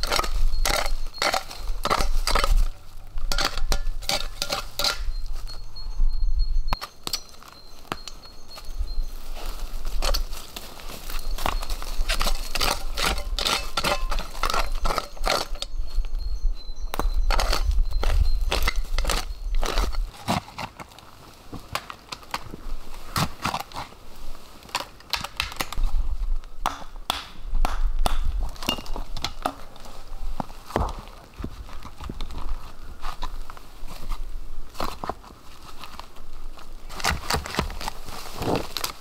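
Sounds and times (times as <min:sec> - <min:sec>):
shovel digging in soil: 0:00.0 - 0:05.2, 0:09.9 - 0:15.8, 0:17.3 - 0:21.0, 0:23.0 - 0:24.0, 0:36.9 - 0:39.0.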